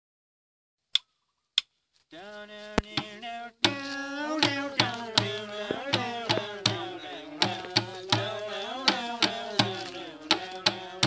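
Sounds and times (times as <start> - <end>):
person singing: 2.2 - 11.0
sticks striking plastic containers: 2.8 - 11.0.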